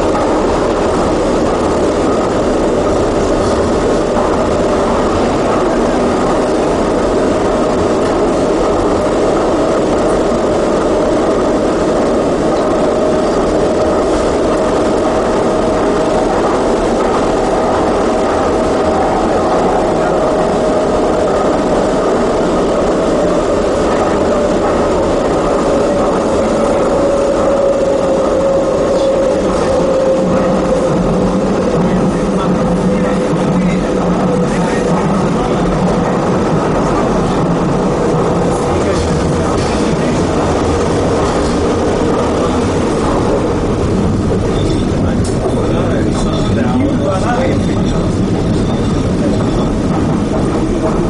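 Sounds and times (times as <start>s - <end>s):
train wheels rumbling on rails: 0.0s - 51.0s.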